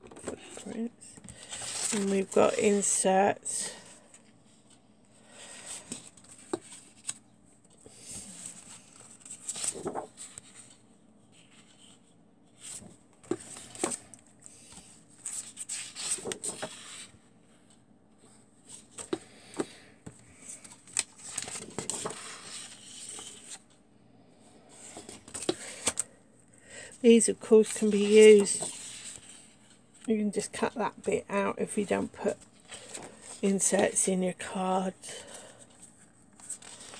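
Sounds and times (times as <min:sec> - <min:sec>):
paper rustling and sliding: 0:00.2 - 0:02.8, 0:07.9 - 0:17.8, 0:18.7 - 0:23.7, 0:27.4 - 0:29.9, 0:36.4 - 0:36.9.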